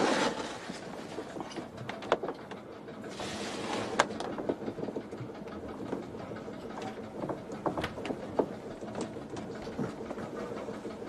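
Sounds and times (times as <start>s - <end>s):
sharp knocks and creaks: 0.1s - 10.8s.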